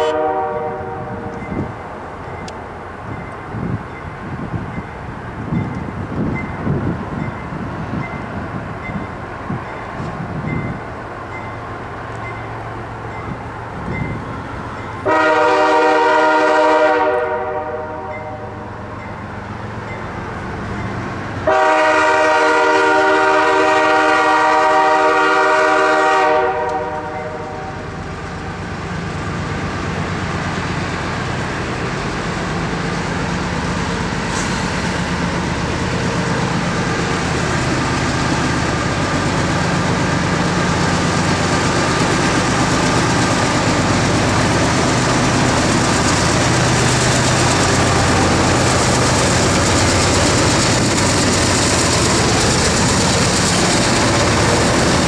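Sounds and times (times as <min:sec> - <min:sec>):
train air horn: 0:00.0 - 0:01.5, 0:15.0 - 0:18.6, 0:21.4 - 0:28.0
diesel locomotive engines: 0:00.0 - 0:55.0
wheels rumbling on rail: 0:00.0 - 0:55.0.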